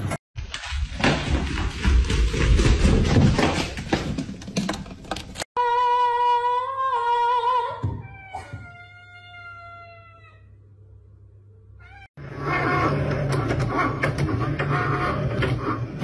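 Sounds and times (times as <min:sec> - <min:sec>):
cat meowing: 0:08.0 - 0:10.5, 0:11.8 - 0:12.2.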